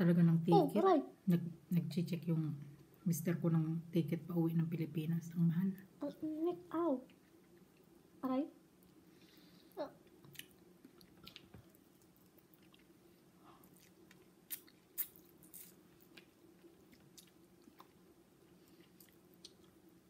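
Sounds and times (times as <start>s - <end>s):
faint low hum: 0.0s - 20.0s
chewing and lip smacking: 10.2s - 12.9s, 13.6s - 18.0s, 18.6s - 19.8s.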